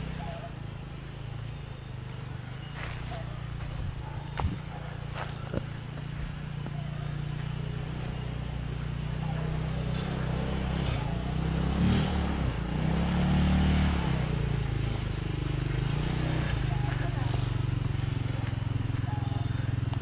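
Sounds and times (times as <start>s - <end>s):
go-kart engine revving: 0.0s - 20.0s.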